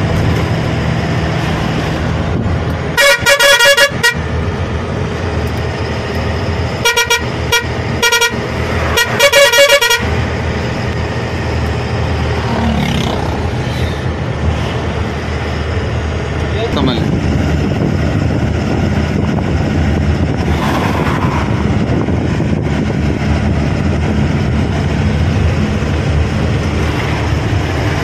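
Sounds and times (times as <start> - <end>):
truck engine and road noise: 0.0 - 28.0
truck horn honking: 2.9 - 4.4, 6.7 - 10.3.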